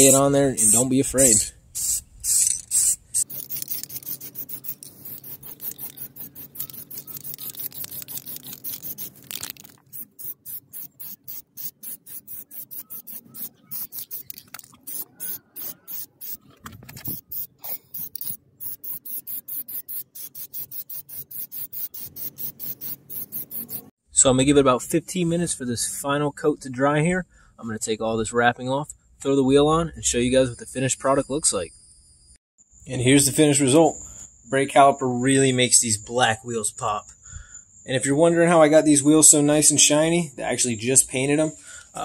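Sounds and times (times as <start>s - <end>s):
aerosol spray can pulsing hiss: 0.0s - 23.9s.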